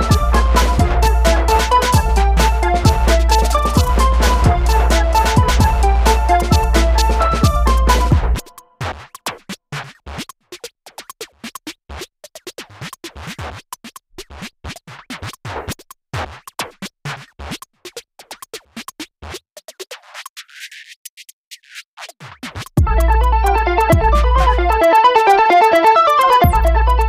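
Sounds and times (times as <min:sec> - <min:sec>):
choppy electronic music: 0:00.0 - 0:08.8, 0:22.8 - 0:27.0.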